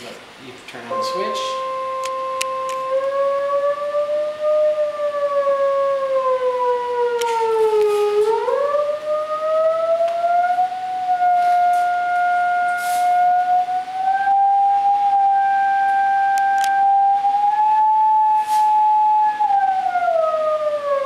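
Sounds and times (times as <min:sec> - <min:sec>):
gliding electronic tone: 0:00.9 - 0:03.3.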